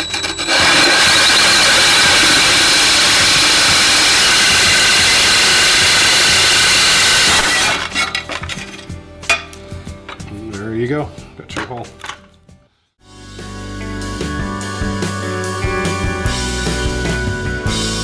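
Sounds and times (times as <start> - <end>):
drill grinding through tile: 0.0 - 8.1.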